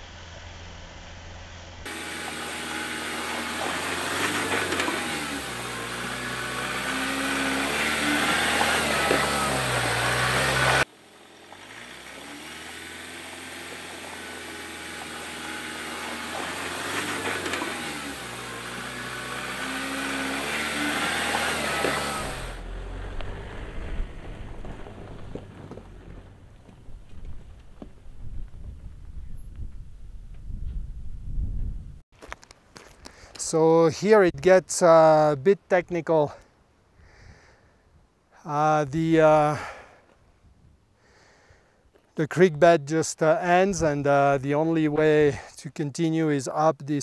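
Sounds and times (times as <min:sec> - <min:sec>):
diesel truck driving past: 0:00.0 - 0:27.0
low rumble: 0:22.5 - 0:32.0.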